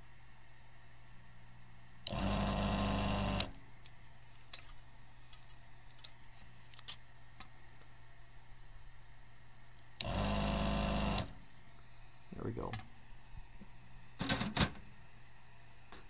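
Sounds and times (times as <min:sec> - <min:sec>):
desoldering pump running: 0:02.1 - 0:03.6, 0:10.0 - 0:11.7.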